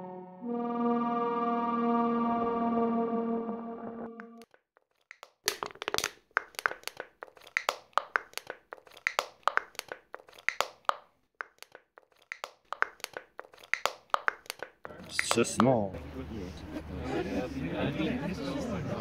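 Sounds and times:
held electronic note: 0.0s - 4.4s.

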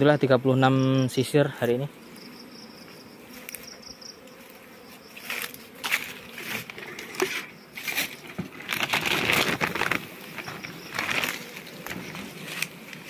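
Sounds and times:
footsteps crunching through dry leaves: 4.4s - 13.0s.

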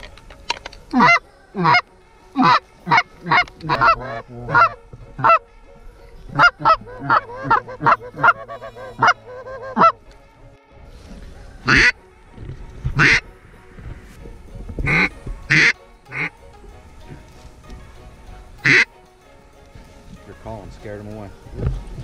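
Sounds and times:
goose call honks and clucks: 0.9s - 1.8s, 2.4s - 5.4s, 6.3s - 10.0s, 11.7s - 12.0s, 13.0s - 13.2s, 14.8s - 16.3s, 18.6s - 18.9s.

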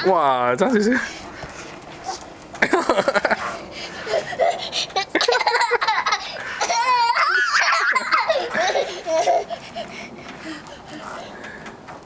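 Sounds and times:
young children giggling: 2.1s - 9.9s.

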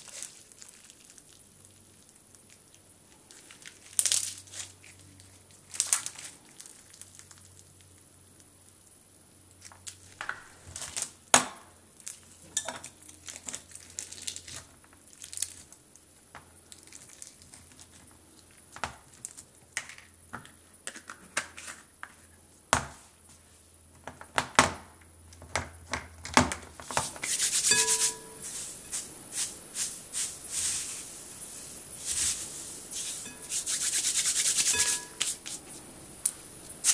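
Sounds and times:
crunchy slime crackling pops: 0.0s - 8.5s
beads rattling on glass bowl: 27.5s - 28.6s, 33.0s - 35.2s.

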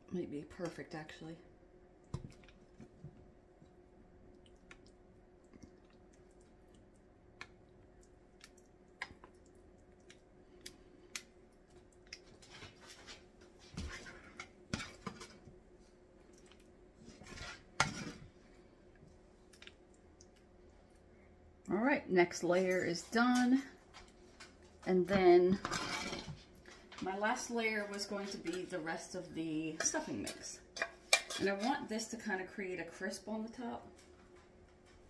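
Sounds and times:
faint steady hum: 0.0s - 35.0s
spoon scraping dishes: 25.6s - 26.4s, 29.8s - 31.9s.

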